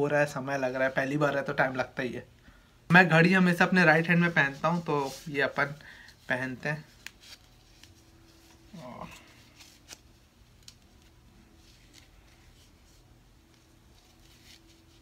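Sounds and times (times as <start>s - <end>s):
fabric band rustling and clicking: 6.9s - 8.7s, 9.4s - 15.0s.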